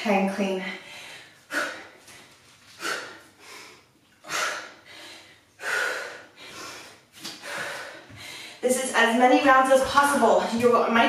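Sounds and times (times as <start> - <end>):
woman breathing heavily: 0.4 - 8.7.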